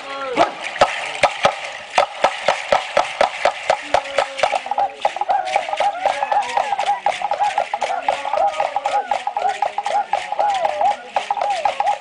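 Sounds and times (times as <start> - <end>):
dancers' percussive beat: 0.4 - 12.0
men chanting: 3.9 - 12.0.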